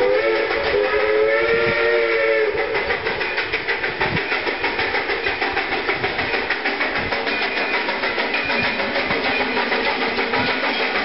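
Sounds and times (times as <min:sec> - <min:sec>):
steam locomotive whistle chord: 0:00.0 - 0:02.8
locomotive exhaust chuffing: 0:00.0 - 0:11.0.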